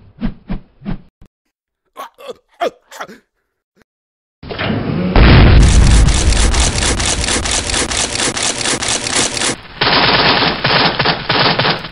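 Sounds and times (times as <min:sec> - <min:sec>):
heavy deep crash: 0:05.2 - 0:07.0
fast rattle of sharp hits: 0:05.6 - 0:09.6.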